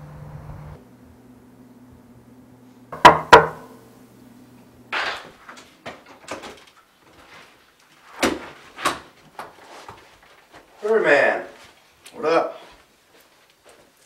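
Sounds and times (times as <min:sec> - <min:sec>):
low steady hum: 0:00.0 - 0:04.9.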